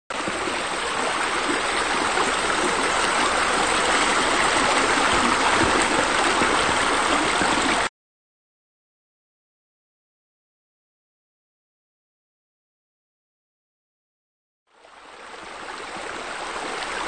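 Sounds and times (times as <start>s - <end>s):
water pouring into pool: 0.1s - 7.9s.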